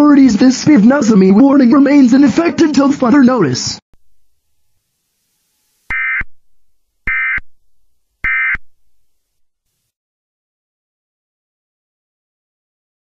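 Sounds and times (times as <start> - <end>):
warbling data tone bursts: 5.9 - 6.4, 7.1 - 7.6, 8.2 - 8.7.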